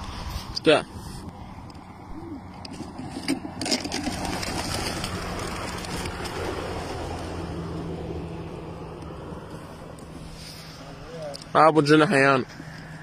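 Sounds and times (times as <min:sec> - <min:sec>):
pigeon wings flapping: 0:03.7 - 0:07.6.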